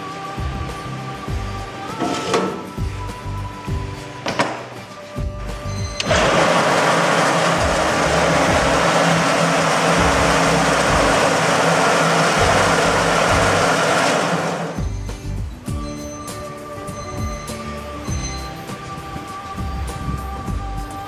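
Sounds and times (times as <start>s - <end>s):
soft background music: 0.0s - 21.0s
machine rushing noise: 6.0s - 15.3s.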